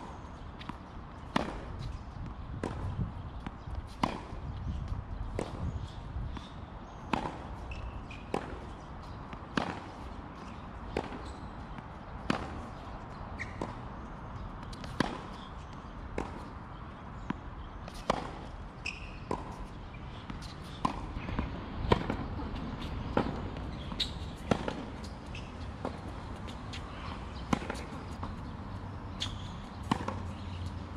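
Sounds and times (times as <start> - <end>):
outdoor background noise: 0.0 - 30.9
tennis ball struck by racket: 0.6 - 1.9, 2.6 - 4.4, 7.1 - 12.8, 13.4 - 13.8, 14.6 - 15.5, 16.1 - 16.5, 17.2 - 18.6, 19.2 - 19.7, 20.3 - 26.6, 27.4 - 28.3, 29.2 - 30.4
tennis ball bouncing on hard court: 0.6 - 14.0, 14.6 - 16.6, 17.2 - 28.5, 29.1 - 30.8.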